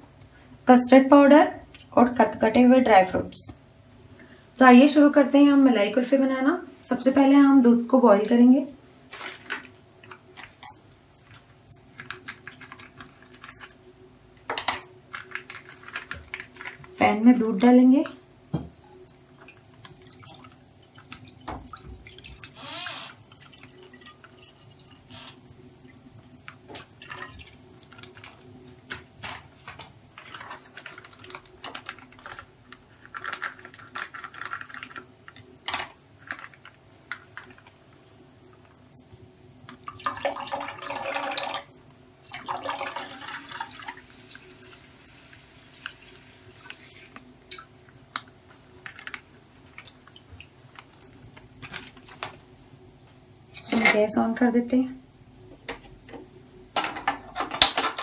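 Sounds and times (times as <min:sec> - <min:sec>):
small clicks of packet and pan: 0:09.1 - 0:13.8, 0:14.4 - 0:17.0, 0:26.5 - 0:37.8, 0:46.6 - 0:52.4
dripping: 0:19.4 - 0:25.4.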